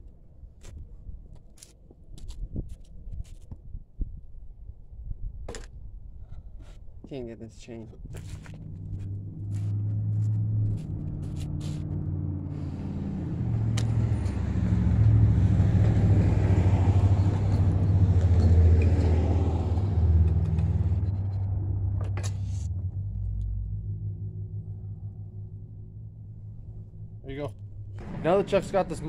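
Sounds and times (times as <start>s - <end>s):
vehicle engine running: 8.2s - 29.0s.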